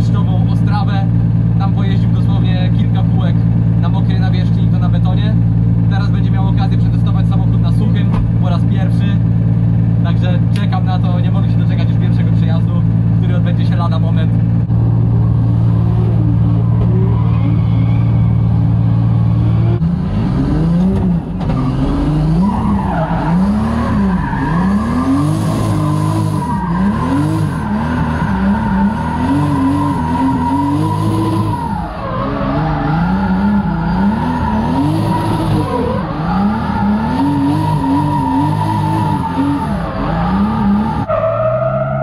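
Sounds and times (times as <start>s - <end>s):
car engine revving: 0.0s - 42.0s
tyres squealing: 15.8s - 19.8s, 21.5s - 42.0s.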